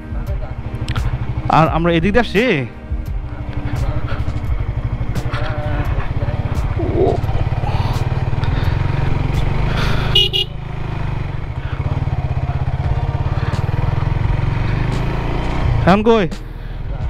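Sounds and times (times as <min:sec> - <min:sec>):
motorcycle engine running: 0:00.0 - 0:17.0
short horn beep: 0:10.1 - 0:10.5.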